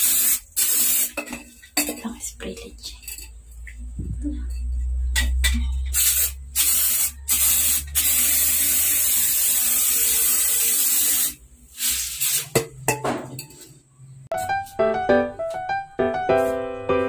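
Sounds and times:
aerosol can spraying: 0.0 - 1.2, 5.9 - 12.5.

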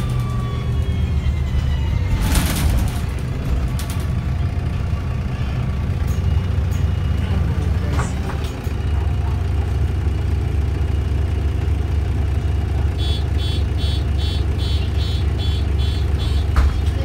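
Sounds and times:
bus diesel engine rumble: 0.0 - 17.0
rapid electronic warning beeps: 13.1 - 16.5.

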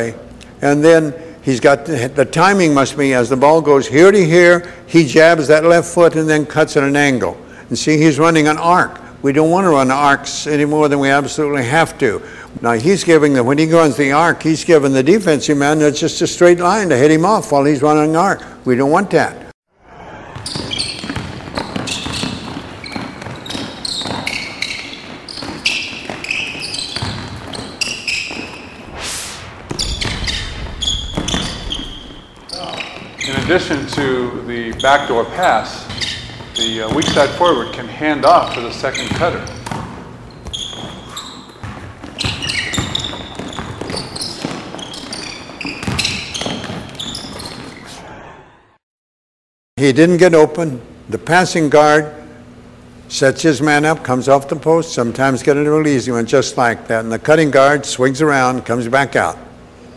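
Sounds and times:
sneakers squeaking on court: 20.3 - 28.9, 29.6 - 47.9
basketball bouncing: 20.4 - 28.9, 29.5 - 35.2, 35.8 - 47.8
footfalls: 28.3 - 33.6
brief whoosh: 28.8 - 32.4.

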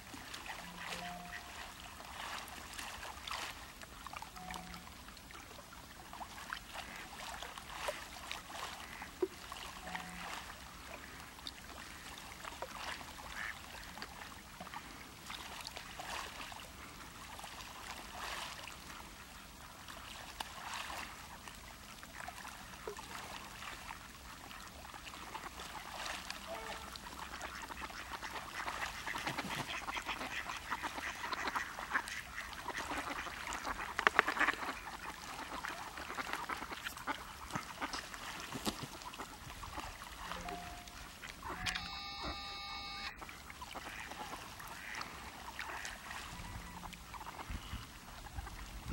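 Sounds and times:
swans honking softly: 0.0 - 5.0, 6.2 - 14.8, 22.2 - 48.9
water splashing: 0.0 - 48.9.

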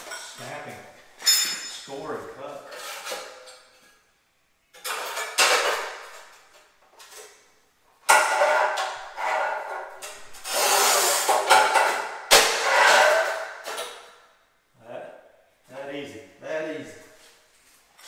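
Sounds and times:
tile cutter scoring wheel scraping: 10.4 - 11.6.

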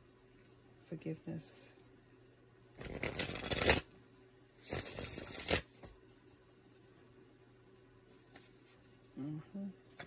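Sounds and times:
cards shuffling: 2.8 - 3.9, 4.6 - 6.4.

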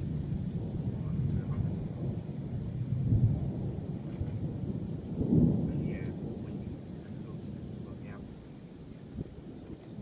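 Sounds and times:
rolling thunder: 0.0 - 10.0.

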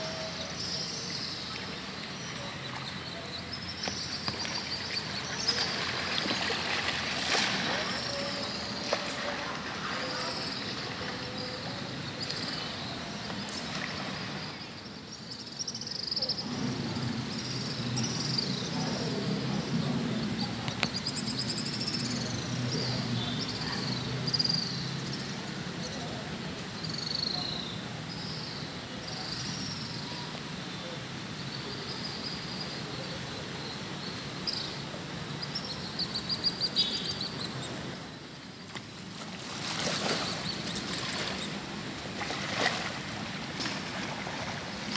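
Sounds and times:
river flowing: 0.0 - 15.1, 36.9 - 44.9
birds chirping: 0.0 - 26.2, 31.2 - 38.5.

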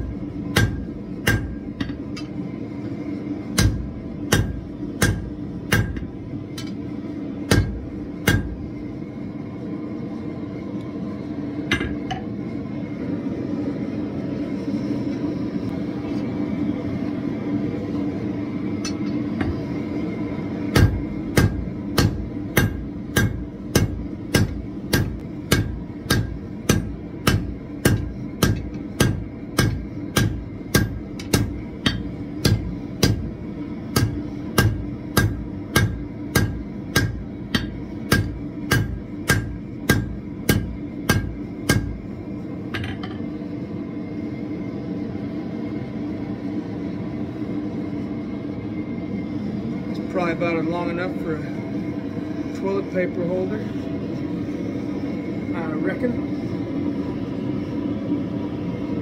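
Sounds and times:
hammer striking steel on anvil: 0.0 - 2.4, 3.5 - 6.8, 7.4 - 8.6, 11.7 - 12.3, 18.8 - 19.6, 20.7 - 42.1.

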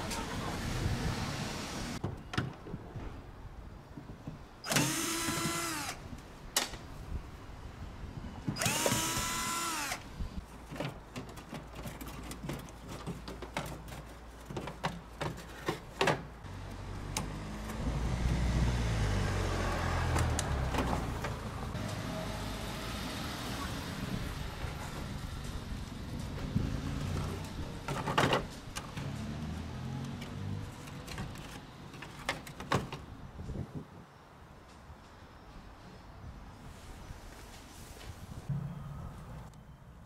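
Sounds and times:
cordless drill whining: 4.7 - 6.0, 8.6 - 10.0.

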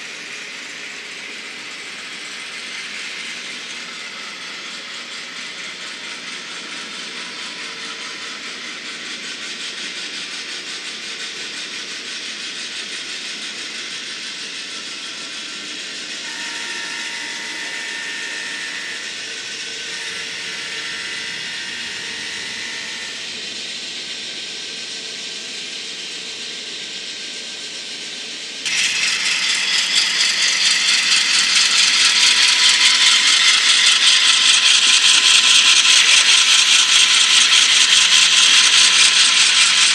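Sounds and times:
model train rattling on track: 0.0 - 39.9.

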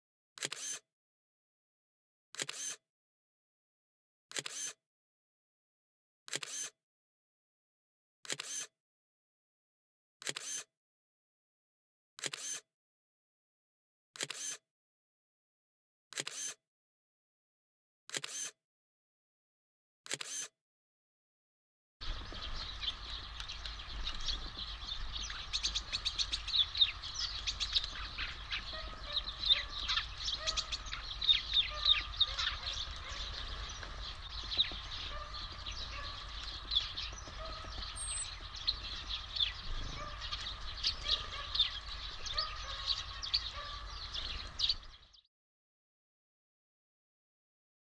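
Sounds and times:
small songbirds chirping: 22.0 - 45.3.

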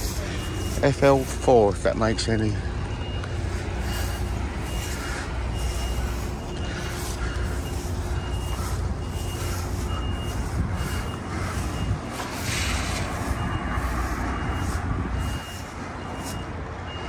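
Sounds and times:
engine rumbling: 0.0 - 17.0
reversing alarm beeping: 0.0 - 17.0.

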